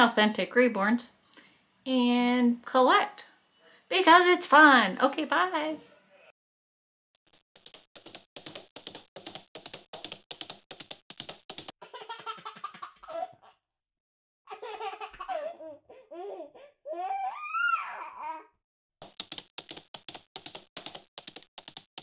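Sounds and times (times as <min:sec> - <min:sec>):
fast typing-like clicks: 0:07.6 - 0:11.7, 0:19.0 - 0:22.0
baby laughing: 0:11.8 - 0:13.6, 0:14.5 - 0:18.4.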